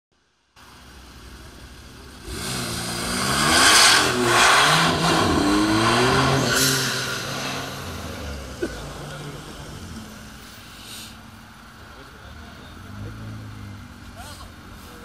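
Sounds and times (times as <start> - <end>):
sports car accelerating hard: 2.1 - 10.4.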